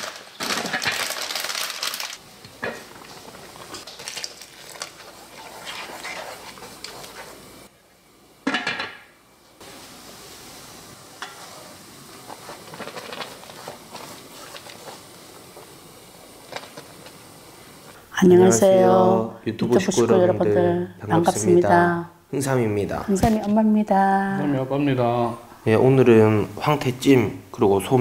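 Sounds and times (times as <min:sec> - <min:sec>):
noodles bubbling in a pot: 0:00.0 - 0:18.0
chopsticks scraping a pan: 0:04.6 - 0:07.5, 0:11.2 - 0:15.1.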